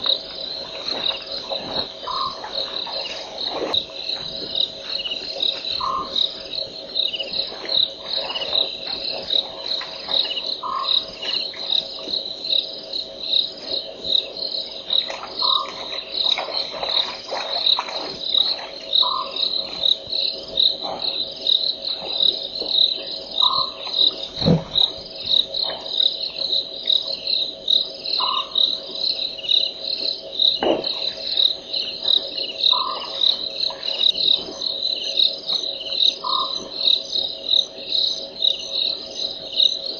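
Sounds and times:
crickets chirping: 0.0 - 39.9.

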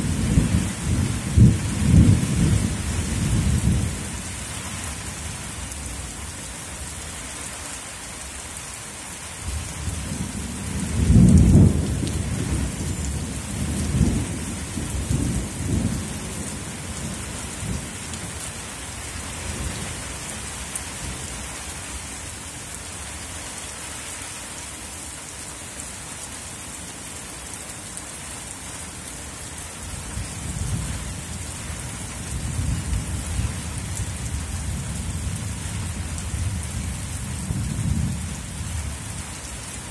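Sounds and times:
thunder rumbling: 0.0 - 4.0, 9.8 - 18.0
heavy rain falling: 0.0 - 39.9.

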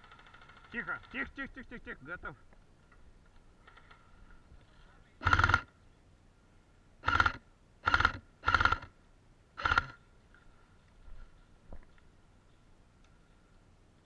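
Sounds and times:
airsoft rifle firing bursts: 0.0 - 1.3, 5.2 - 5.7, 7.0 - 8.9, 9.6 - 10.0.

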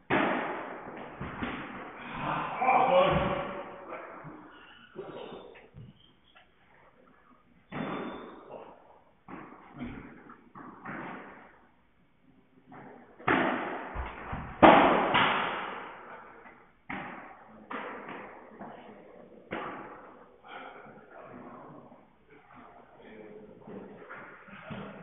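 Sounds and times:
padel ball hit by rackets: 0.1 - 1.9, 12.7 - 15.9
ball bouncing off court and glass: 7.7 - 8.4.

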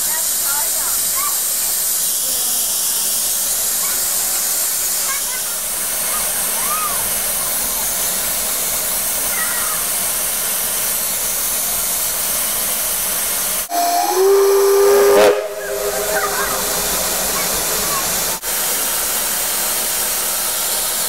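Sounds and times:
steam venting hiss: 0.0 - 21.0
steam whistle chord: 13.7 - 18.4.

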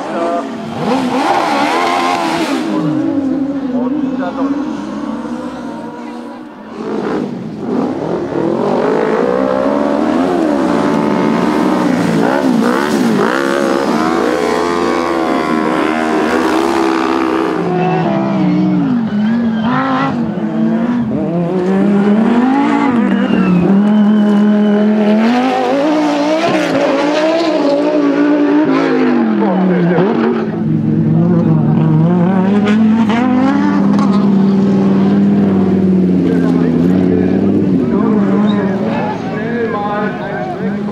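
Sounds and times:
racing car engines revving: 0.0 - 40.9.

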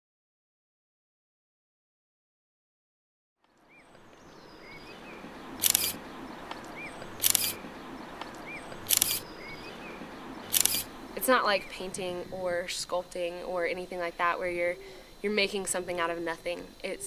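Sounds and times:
faint outdoor background: 3.4 - 17.0
camera shutter snap: 5.6 - 6.0, 7.2 - 7.6, 8.9 - 9.2, 10.5 - 10.9.

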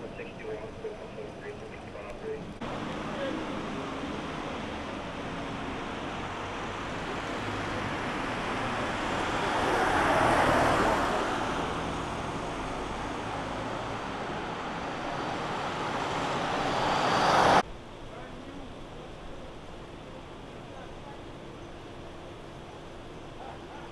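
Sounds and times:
vehicle approaching: 0.0 - 17.6
vehicle passing: 2.6 - 17.6.

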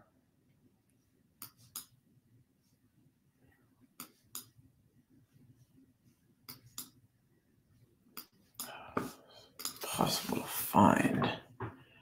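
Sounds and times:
faint room hum: 0.0 - 12.0.

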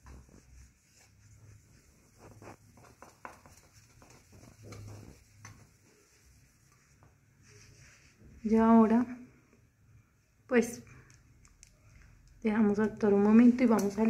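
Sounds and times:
cotton ball rubbing metal: 0.0 - 8.2.

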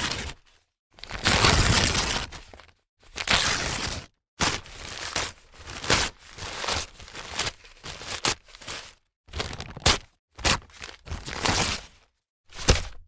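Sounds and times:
newspaper rustling and crinkling: 4.5 - 13.0.

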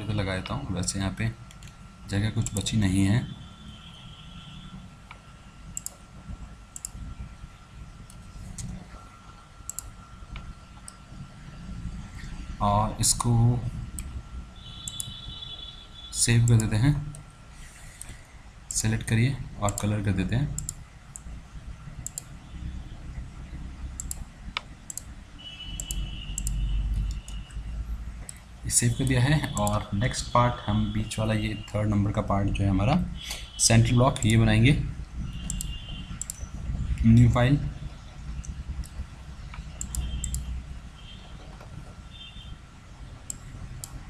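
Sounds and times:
low steady hum: 0.0 - 44.0
computer mouse clicks: 1.5 - 1.8, 2.4 - 2.7, 5.8 - 6.0, 6.7 - 7.0, 9.7 - 11.0, 14.8 - 15.2, 16.5 - 18.8, 19.7 - 19.9, 20.6 - 21.3, 22.0 - 22.3, 24.0 - 25.1, 25.8 - 27.6, 28.2 - 28.4, 29.5 - 29.8, 34.1 - 34.4, 35.4 - 37.0, 38.4 - 40.5, 43.2 - 44.0.

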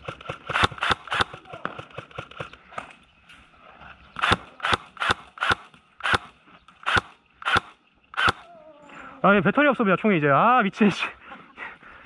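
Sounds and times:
airsoft gun shots: 0.1 - 2.5, 4.2 - 8.5.

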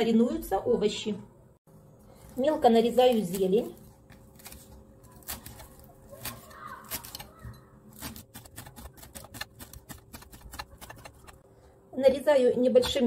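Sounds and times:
knife chopping on wooden board: 7.9 - 11.4.

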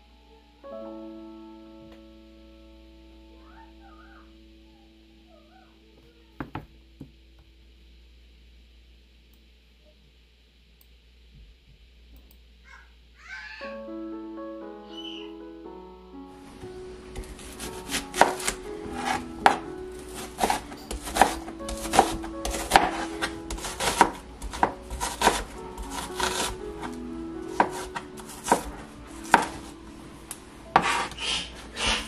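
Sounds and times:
knife chopping on cutting board: 17.2 - 26.9, 27.5 - 29.7, 30.8 - 32.0.

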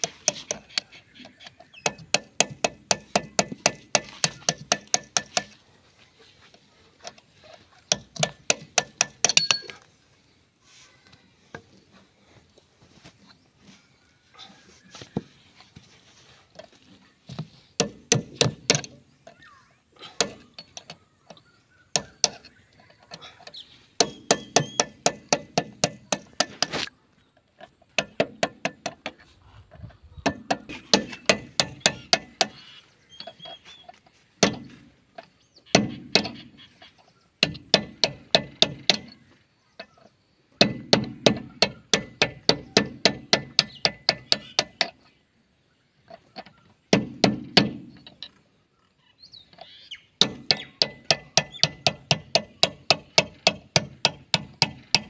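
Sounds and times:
hammer striking metal: 1.8 - 5.6, 7.9 - 9.8.

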